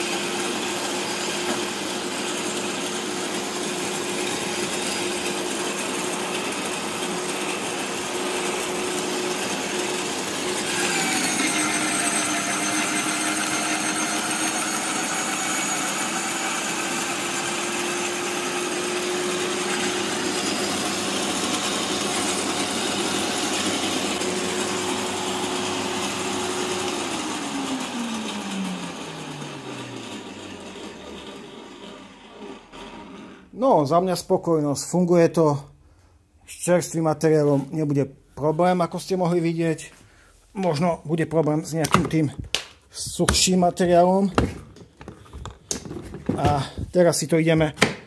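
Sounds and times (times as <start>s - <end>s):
electric shredder crushing branches: 0.0s - 33.2s.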